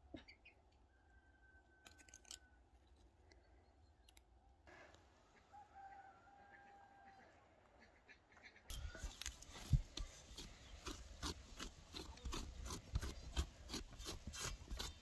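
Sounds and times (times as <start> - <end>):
rooster crowing faintly: 5.4 - 7.4.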